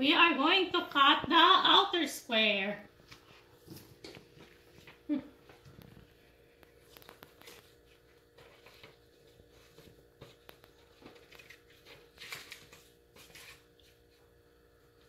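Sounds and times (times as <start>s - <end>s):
paper sheet rustling: 6.8s - 14.1s.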